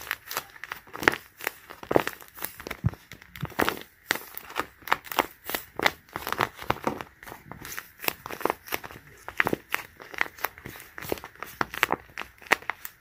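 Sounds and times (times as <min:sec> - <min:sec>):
paper and tape crinkling: 0:00.0 - 0:13.0.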